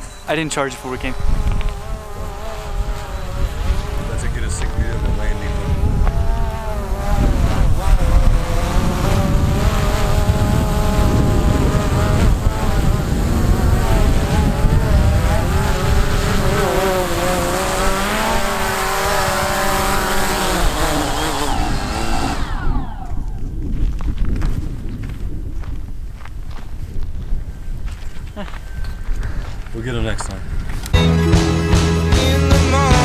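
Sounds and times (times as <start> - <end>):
drone propellers buzzing: 0.0 - 23.6
wind rumbling on microphone: 0.0 - 31.0.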